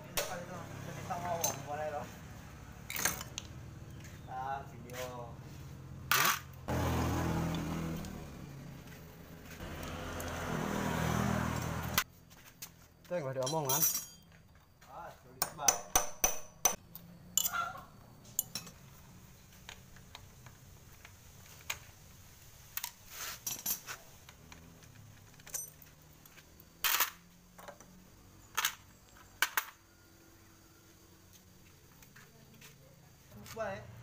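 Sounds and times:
metal tools clinking: 1.3s - 1.8s, 2.9s - 3.5s, 13.3s - 14.6s, 17.3s - 17.7s, 18.3s - 18.9s, 22.8s - 27.2s
sharp metal knocks: 15.4s - 16.8s.

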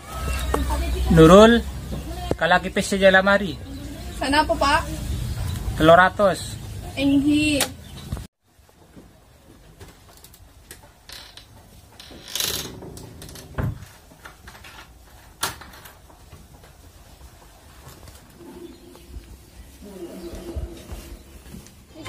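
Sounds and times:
rustle: 0.0s - 22.0s
wardrobe door clicks and knocks: 12.0s - 13.9s.

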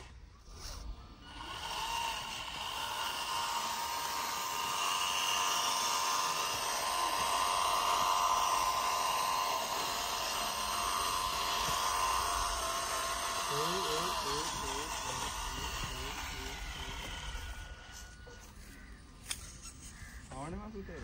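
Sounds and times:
cultivator pulled through sand: 0.0s - 18.8s
small motor whining: 0.0s - 21.0s.

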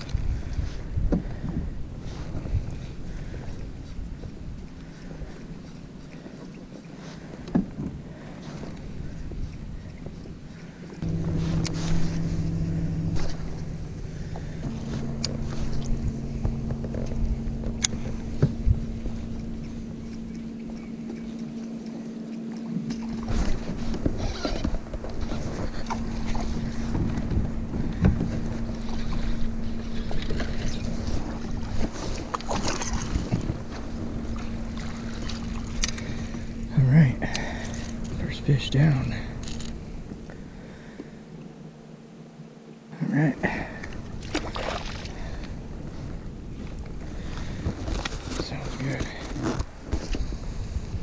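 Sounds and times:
wind on microphone: 0.0s - 5.7s, 23.1s - 40.6s, 43.9s - 51.0s
steady low hum: 0.0s - 51.0s
water moving around kayak: 0.0s - 51.0s.

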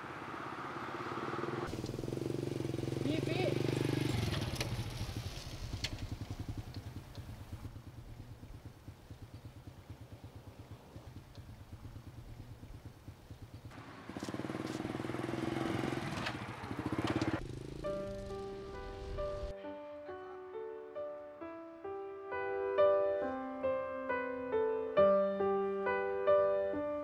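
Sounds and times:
motorcycle engine idling: 0.0s - 19.5s
motorcycle engine revving: 0.0s - 19.5s
soft piano music: 17.8s - 27.0s.

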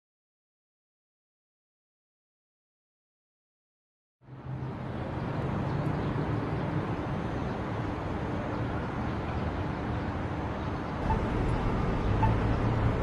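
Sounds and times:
traffic noise with low rumble: 4.2s - 13.0s.

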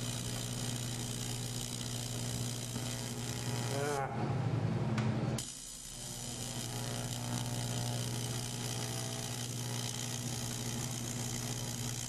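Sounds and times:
welding hiss: 0.0s - 3.9s, 5.4s - 12.0s
welding arc buzz: 0.0s - 4.2s, 5.3s - 12.0s.

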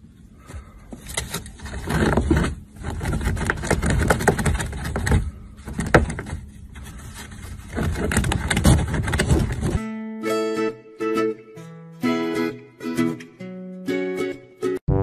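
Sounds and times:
rabbit claws scratching wooden floor: 0.9s - 9.8s.

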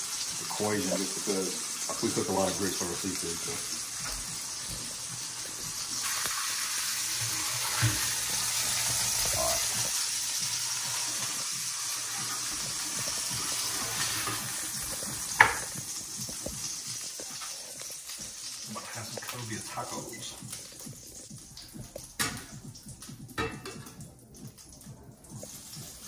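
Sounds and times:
oil sizzling in a frying pan: 0.0s - 26.0s.

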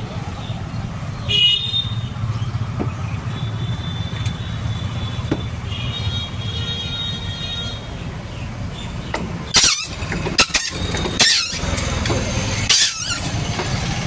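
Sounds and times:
high squeal: 9.5s - 11.8s, 12.6s - 13.4s.

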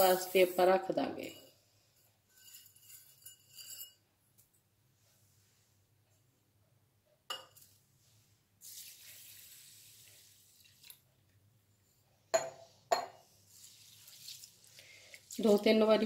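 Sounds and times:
hand swishing rice in water: 8.6s - 11.0s, 13.5s - 14.8s
water poured into rice: 8.6s - 11.1s, 13.5s - 16.0s.

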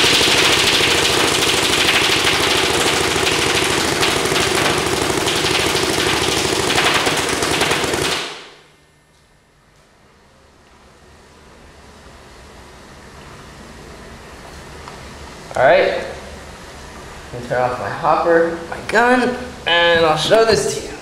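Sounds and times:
paintball marker rapid firing: 0.0s - 8.6s.

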